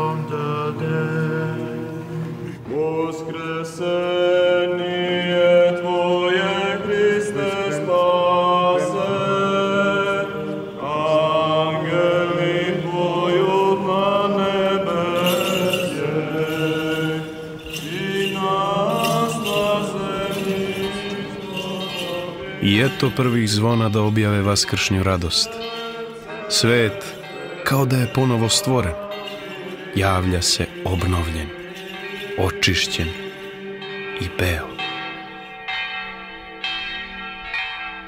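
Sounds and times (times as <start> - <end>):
men's voices chanting: 0.0 - 34.9.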